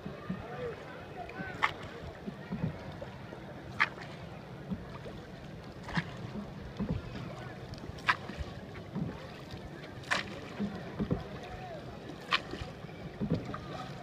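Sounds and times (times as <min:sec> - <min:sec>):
oars rowing strokes: 0:00.0 - 0:14.0.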